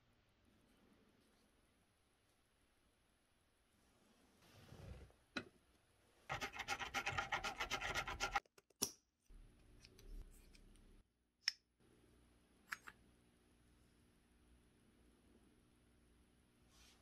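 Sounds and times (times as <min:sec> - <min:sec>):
rapid scraping on wood: 0:06.3 - 0:08.4.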